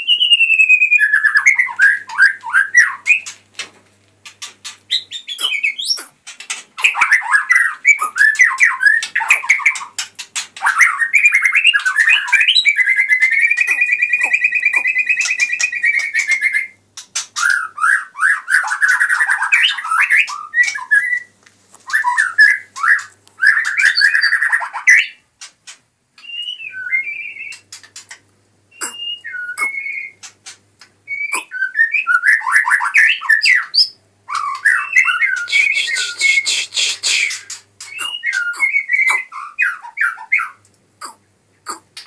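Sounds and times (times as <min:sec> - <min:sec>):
whistled bird notes: 0:05.0 - 0:06.1, 0:10.7 - 0:16.8, 0:26.2 - 0:27.6, 0:28.7 - 0:30.2, 0:31.1 - 0:41.8
bird warbling: 0:13.4 - 0:16.6, 0:28.8 - 0:30.2, 0:31.2 - 0:31.8, 0:34.3 - 0:42.0.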